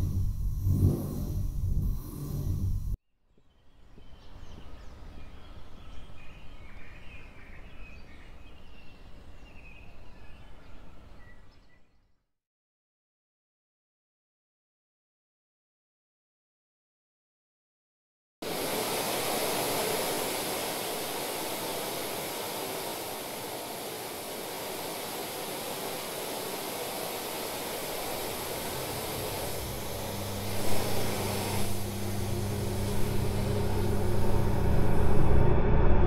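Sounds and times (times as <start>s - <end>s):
low droning hum: 0.0s - 3.0s, 18.8s - 36.0s
rushing hiss: 18.4s - 35.2s.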